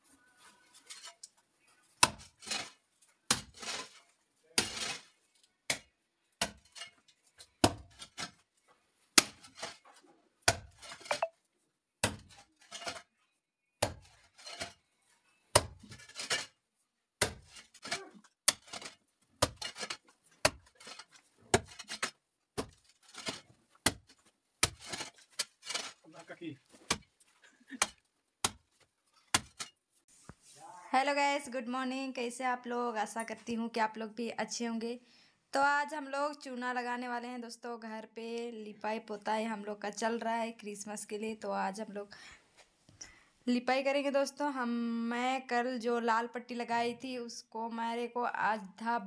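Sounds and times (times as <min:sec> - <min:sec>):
soil scraping: 0:00.2 - 0:05.6, 0:06.4 - 0:11.3, 0:12.1 - 0:13.2, 0:13.8 - 0:16.6, 0:17.2 - 0:30.6
digging tool chopping earth: 0:03.3 - 0:03.9, 0:07.6 - 0:08.4, 0:10.4 - 0:11.3, 0:12.0 - 0:13.0, 0:13.8 - 0:14.8, 0:15.5 - 0:16.5, 0:17.2 - 0:26.0, 0:26.8 - 0:27.1, 0:27.7 - 0:29.7.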